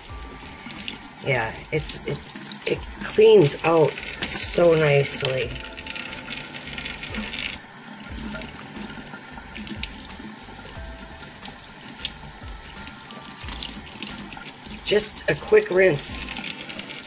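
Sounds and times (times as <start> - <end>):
water splashing into metal sink: 0.0 - 17.0.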